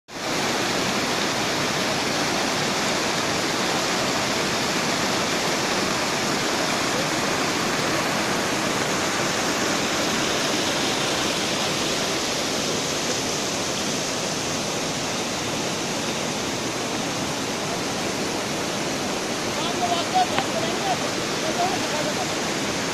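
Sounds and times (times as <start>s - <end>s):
water rushing and splashing: 0.1s - 22.9s.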